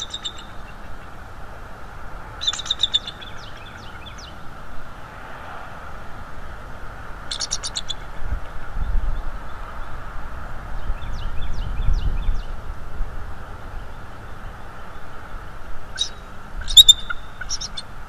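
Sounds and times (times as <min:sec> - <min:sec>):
wind rumbling on microphone: 0:07.9 - 0:18.0
sharp high-pitched bird call: 0:16.0 - 0:17.8.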